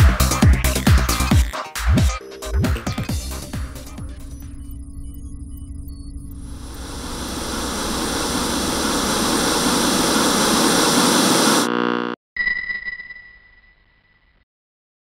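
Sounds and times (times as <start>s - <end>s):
high steady tone: 4.2s - 12.9s
tv static hiss: 6.4s - 12.2s
short buzz: 6.7s - 12.2s.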